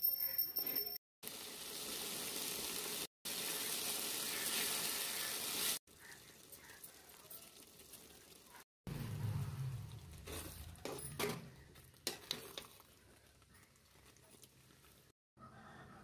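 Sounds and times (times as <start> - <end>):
metal spoon stirring curry: 9.3 - 15.1.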